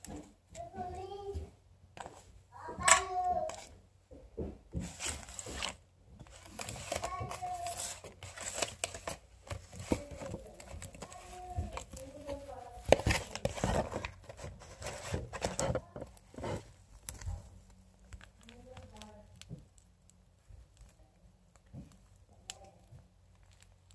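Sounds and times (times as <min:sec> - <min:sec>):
packaging rustling and crinkling: 0:04.7 - 0:23.9
faint voices: 0:09.7 - 0:14.1.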